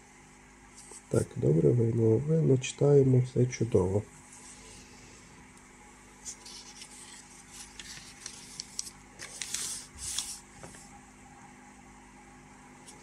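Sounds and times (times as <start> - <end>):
paper pages rustling: 6.2 - 10.9.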